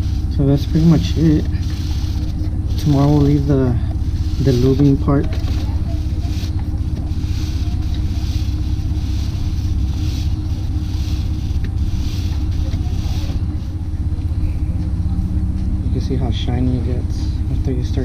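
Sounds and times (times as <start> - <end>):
brush scrubbing motorcycle chain: 0.0 - 14.1
low motor drone: 0.0 - 18.0.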